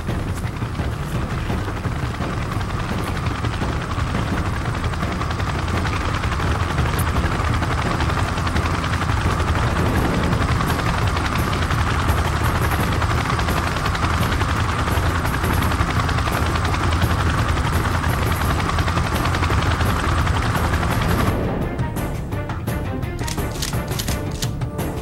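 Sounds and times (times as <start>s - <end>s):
helicopter rotor chopping: 0.0s - 25.0s
music: 0.0s - 25.0s.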